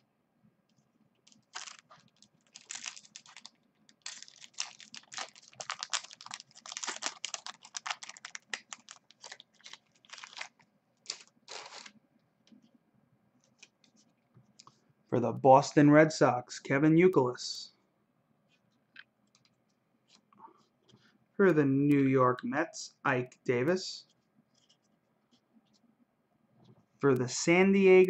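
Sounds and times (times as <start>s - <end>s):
foil wrapper crinkling and tearing: 1.3s - 12.0s.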